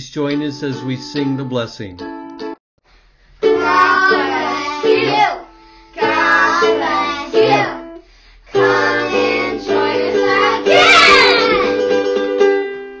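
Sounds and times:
strummed ukulele: 0:03.4 - 0:05.4, 0:08.6 - 0:13.0
children singing: 0:03.4 - 0:07.9, 0:08.5 - 0:11.9.

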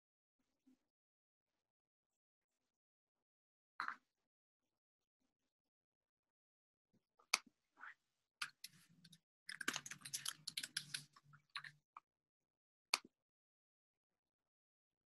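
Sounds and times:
faint keyboard typing: 0:09.5 - 0:11.1.

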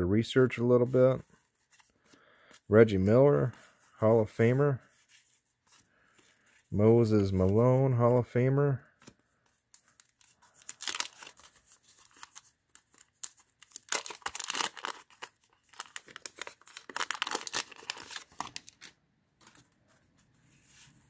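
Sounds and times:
paper wrapper tearing and crinkling: 0:09.7 - 0:19.6.

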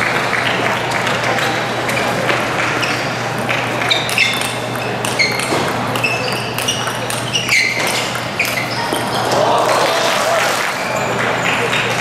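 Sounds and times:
crowd murmur in hall: 0:00.0 - 0:12.0
table tennis ball hits: 0:03.4 - 0:10.5.

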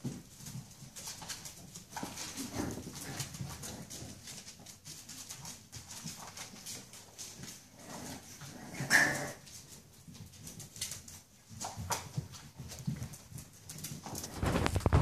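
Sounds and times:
paws clicking on tile floor: 0:00.0 - 0:15.0
puppy yelp: 0:08.8 - 0:09.4
light scuffling: 0:09.3 - 0:15.0.

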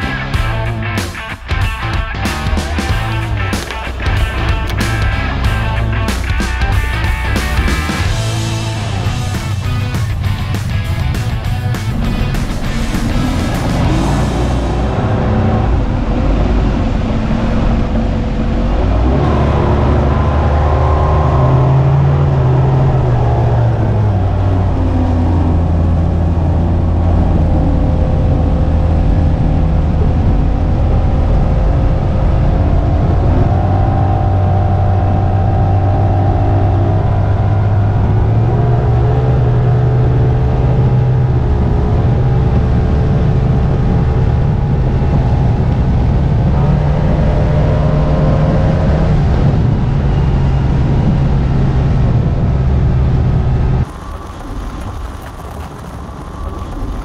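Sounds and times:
rushing water: 0:02.3 - 0:31.0, 0:53.8 - 0:57.0.

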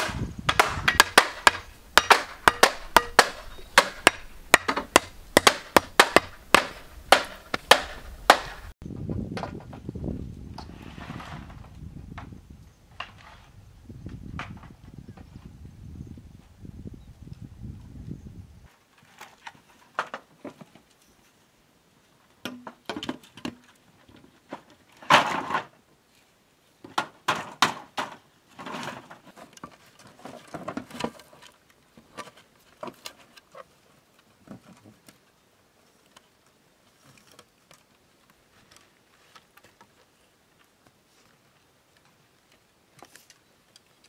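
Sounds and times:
bamboo poles knocking: 0:00.0 - 0:08.7.

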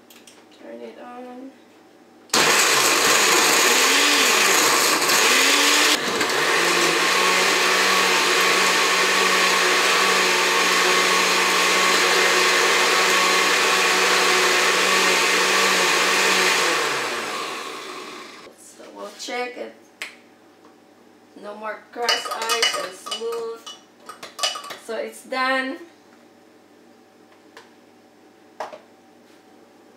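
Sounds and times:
blender crushing ice: 0:02.3 - 0:18.5.

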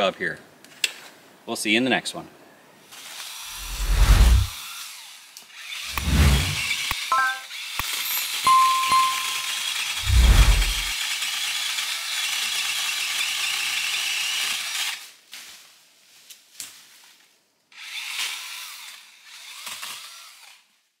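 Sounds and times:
pole saw cutting brush: 0:02.9 - 0:08.2, 0:09.3 - 0:15.1.

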